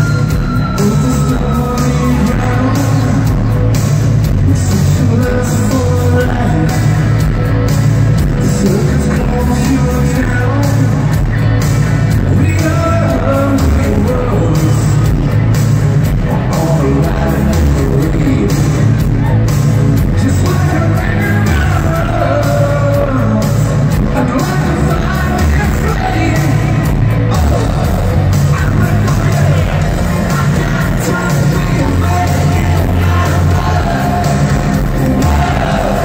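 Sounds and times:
live rock band playing: 0.0 - 36.0
person singing: 0.7 - 3.6, 4.4 - 7.2, 16.2 - 19.4, 20.2 - 36.0.

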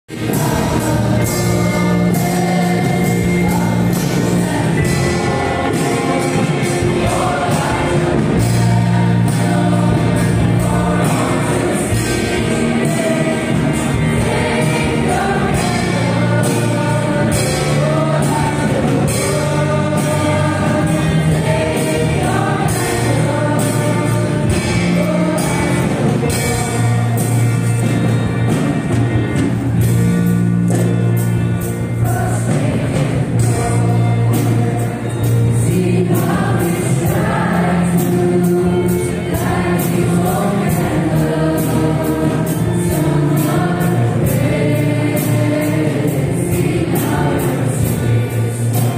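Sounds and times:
choir singing a hymn: 0.1 - 48.9
instrumental accompaniment: 0.1 - 48.9.

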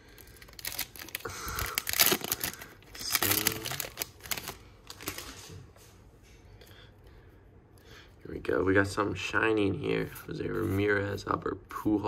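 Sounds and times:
foil wrapper crinkling: 0.0 - 5.5.

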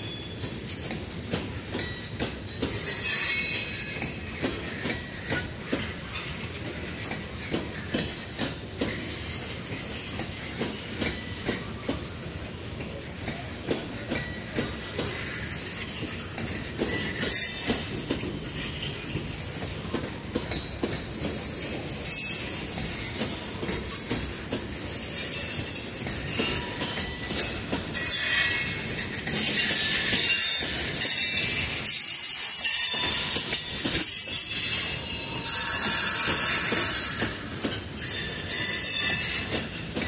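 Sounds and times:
freight train rolling past: 0.0 - 40.0
steel wheels squealing on rail: 0.0 - 40.0.

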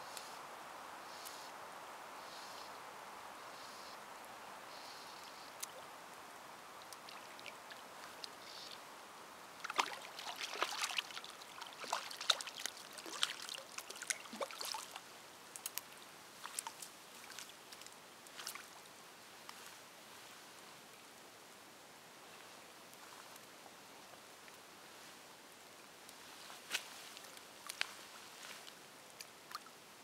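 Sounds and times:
water splashing and crackling: 6.7 - 19.7, 26.1 - 29.8.

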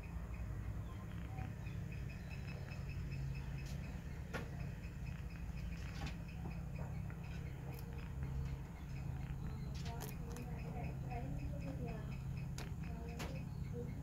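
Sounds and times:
steady low hum: 0.0 - 14.0
rabbit teeth crunching beetroot: 1.1 - 11.0.

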